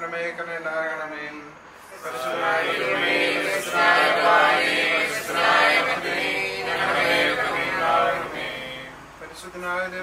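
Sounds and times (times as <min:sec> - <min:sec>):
voices singing together: 0:01.8 - 0:09.3.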